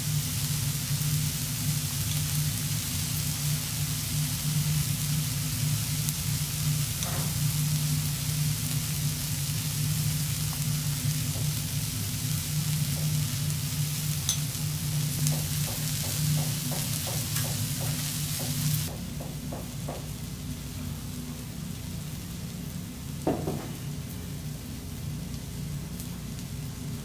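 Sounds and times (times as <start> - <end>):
rice sizzling on a griddle: 0.0 - 27.0
spatula taps: 15.2 - 19.0.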